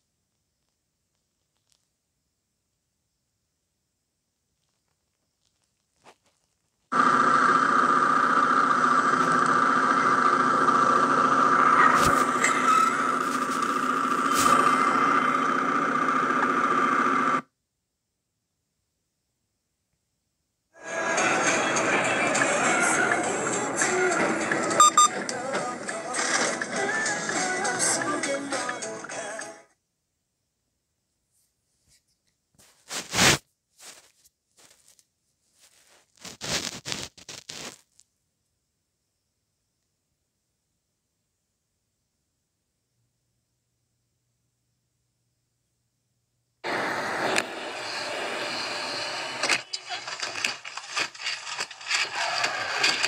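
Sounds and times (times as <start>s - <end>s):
crackling rustling noise: 0.6s - 2.0s, 4.5s - 7.0s, 12.0s - 14.8s, 31.3s - 38.2s, 49.4s - 53.0s
motorcycle engine and road noise: 6.9s - 17.4s.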